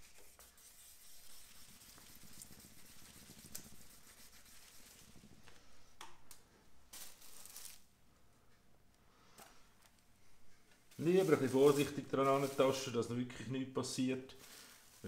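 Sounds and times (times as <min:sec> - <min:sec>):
sandpaper rubbing: 0:00.0 - 0:05.2, 0:11.0 - 0:13.0.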